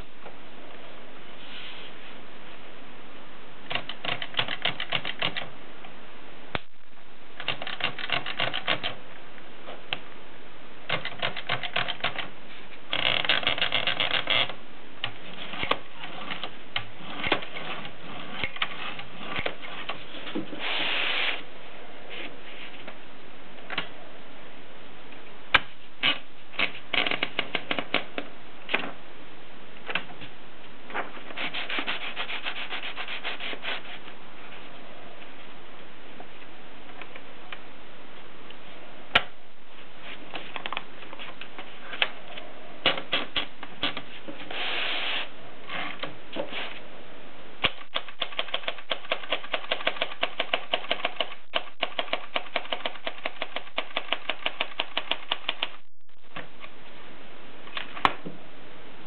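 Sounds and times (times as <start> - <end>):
short sliding rub: 1.4 - 2.0, 19.6 - 21.5, 31.3 - 34.1, 44.0 - 45.4, 46.4 - 46.9
typewriter ratcheting clicks: 3.7 - 5.5, 7.4 - 9.0.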